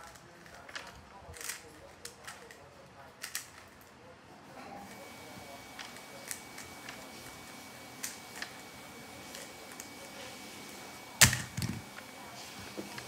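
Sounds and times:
cube thumping down: 0:11.2 - 0:11.9.

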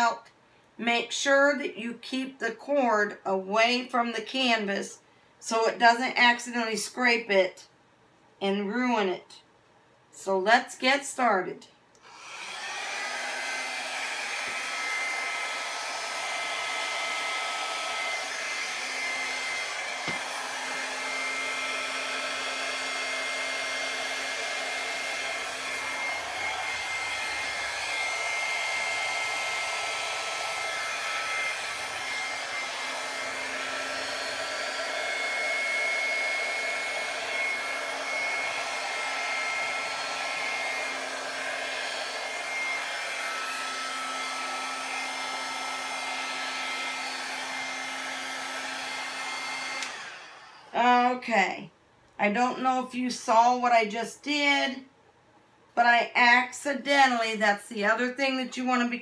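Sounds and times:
blow dryer running: 0:12.0 - 0:51.2.

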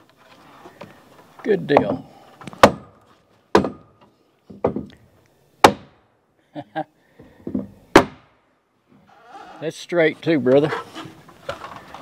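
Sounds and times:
hammer striking wood: 0:01.7 - 0:05.0, 0:05.6 - 0:06.0, 0:07.4 - 0:08.4
soft knocks: 0:04.5 - 0:05.0.

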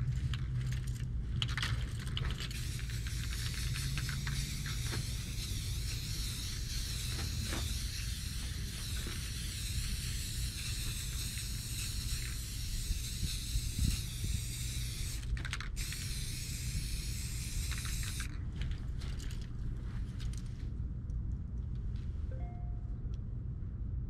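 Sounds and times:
spray can hissing: 0:02.5 - 0:18.3.

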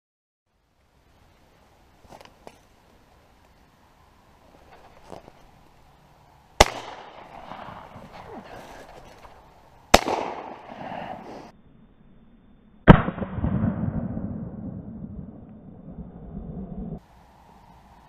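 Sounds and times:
rustling: 0:01.2 - 0:11.5
shotgun shots: 0:06.6 - 0:08.4, 0:09.9 - 0:11.2, 0:12.9 - 0:14.6.

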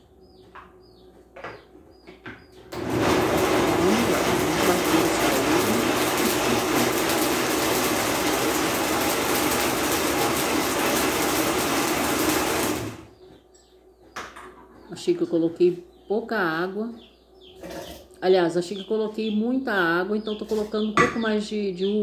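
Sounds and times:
blender running: 0:02.8 - 0:13.2.

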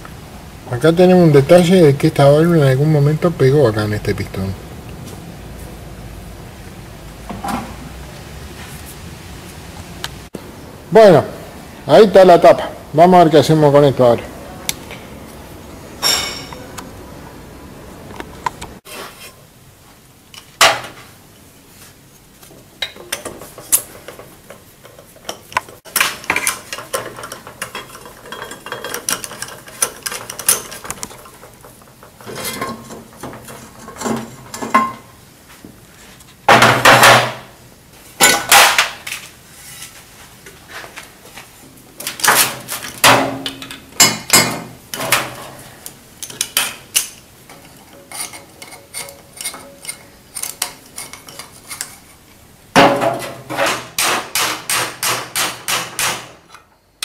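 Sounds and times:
steel tools clanking on metal: 0:16.0 - 0:16.7, 0:22.8 - 0:35.1, 0:46.2 - 0:52.1.

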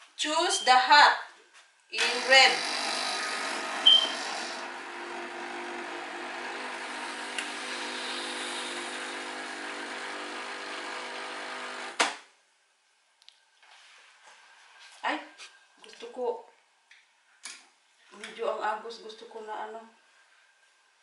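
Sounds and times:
coffee machine pump humming: 0:02.0 - 0:12.0.

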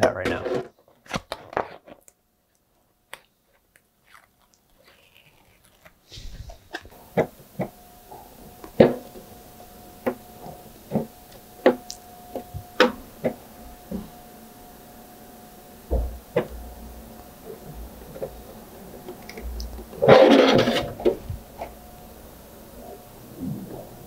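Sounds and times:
faint steady hum: 0:00.0 - 0:24.0
plastic shell clicking and crinkling: 0:18.0 - 0:21.8.

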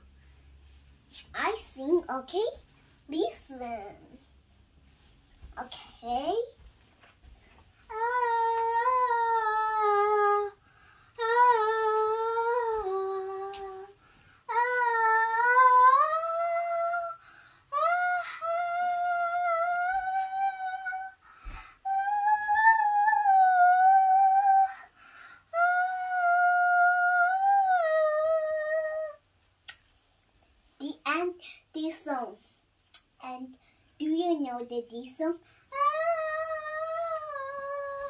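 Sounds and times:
girl singing unaccompanied: 0:01.1 - 0:04.4, 0:07.8 - 0:29.3, 0:30.8 - 0:38.0
girl breathing: 0:10.5 - 0:11.2, 0:13.9 - 0:14.5, 0:17.2 - 0:17.8, 0:21.2 - 0:21.9, 0:24.6 - 0:25.6, 0:35.4 - 0:35.8.

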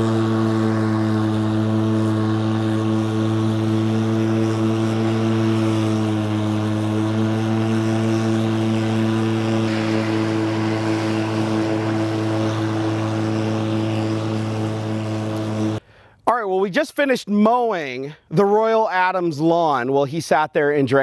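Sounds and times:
electric lawn mower running: 0:00.0 - 0:15.8.

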